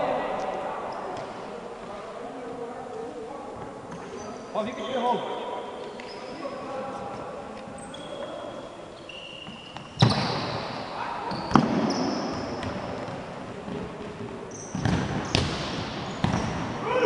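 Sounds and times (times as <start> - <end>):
sneaker squeaks on wooden court: 3.9 - 6.7, 7.7 - 13.8, 14.5 - 16.6
ball struck hard in a gym: 9.8 - 17.0.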